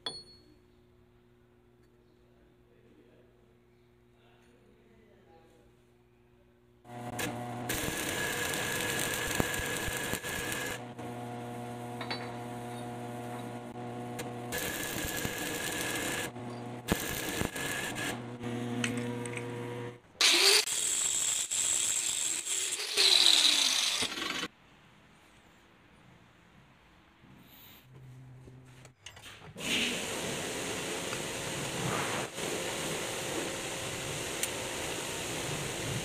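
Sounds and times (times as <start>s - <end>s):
electrical hum: 6.8s - 20.0s
welding arc crackling: 6.9s - 18.5s
angle grinder grinding metal: 6.9s - 24.5s.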